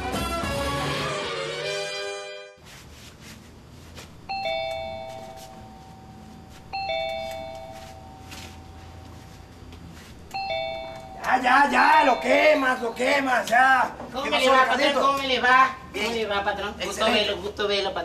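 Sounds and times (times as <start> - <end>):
doorbell two-note chime: 4.3 - 8.6, 10.3 - 13.0.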